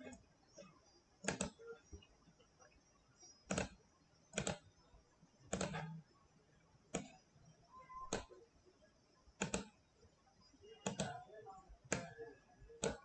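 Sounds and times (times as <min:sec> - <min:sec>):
computer mouse clicks: 0:00.0 - 0:02.1, 0:03.2 - 0:04.8, 0:05.4 - 0:06.1, 0:06.9 - 0:08.4, 0:09.4 - 0:09.9, 0:10.6 - 0:13.0.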